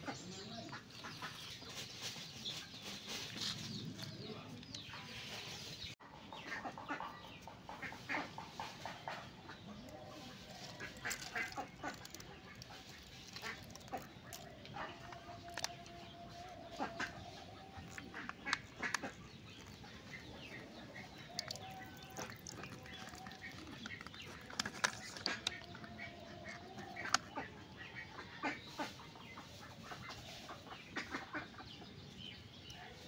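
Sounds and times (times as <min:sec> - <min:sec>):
plastic cups crackling: 0:10.1 - 0:27.5.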